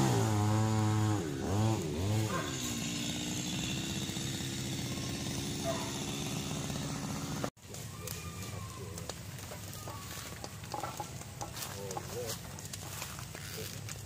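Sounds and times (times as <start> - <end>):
chainsaw engine running: 0.0 - 14.0.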